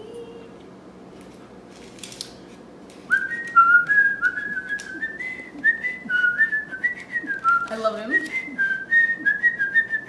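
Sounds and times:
person whistling a tune: 3.1s - 10.0s.

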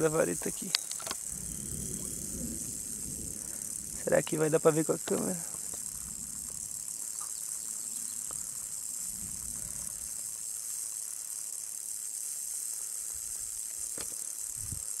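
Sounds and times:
rattlesnake rattling: 0.0s - 15.0s
sharp click: 0.6s - 1.2s.

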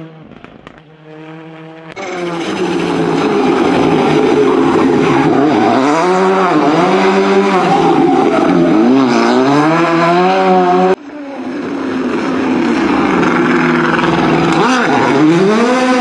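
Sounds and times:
rally car engine revving past: 12.7s - 16.0s.

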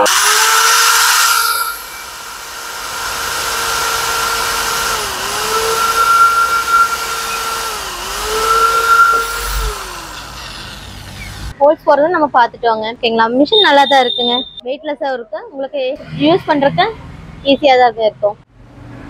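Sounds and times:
hammer drill boring into wood: 0.0s - 11.5s.

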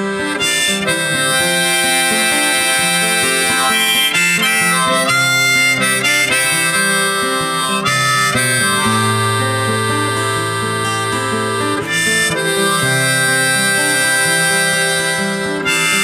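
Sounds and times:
guitar: 0.0s - 16.0s
harmonica: 0.0s - 16.0s.

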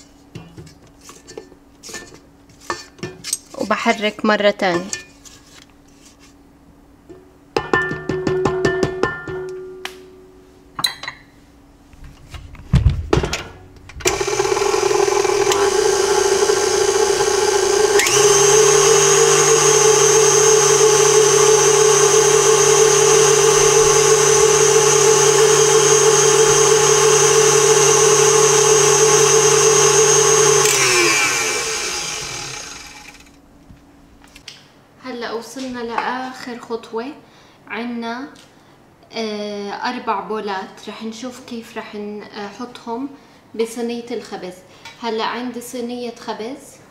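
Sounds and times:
stand mixer motor whirring: 14.0s - 33.3s.

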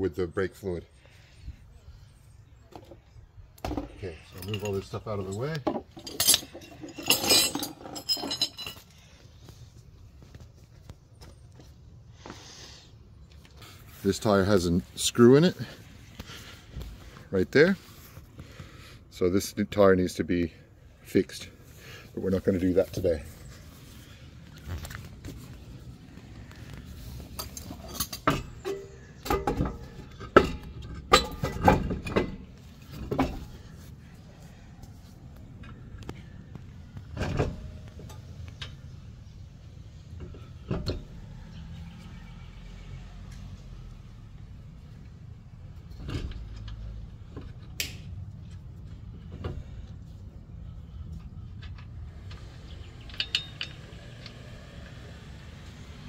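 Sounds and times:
metallic clanks and clinks: 3.7s - 9.0s, 27.2s - 33.6s, 51.6s - 54.4s.

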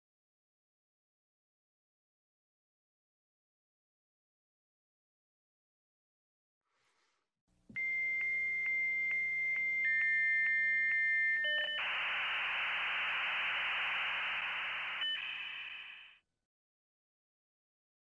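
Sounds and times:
harsh hissing static: 11.8s - 16.2s.

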